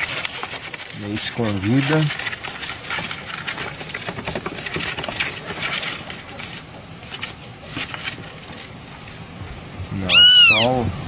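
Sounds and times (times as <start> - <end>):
fingers rustling: 0.0 - 9.2
nestling bird cheeping: 10.1 - 10.7.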